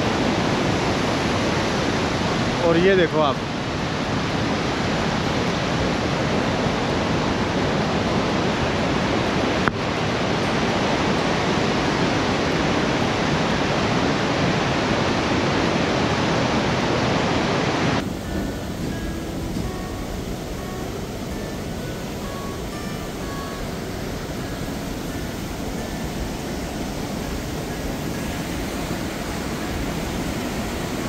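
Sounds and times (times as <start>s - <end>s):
waterfall rushing: 0.0s - 31.0s
quiet music: 18.0s - 31.0s.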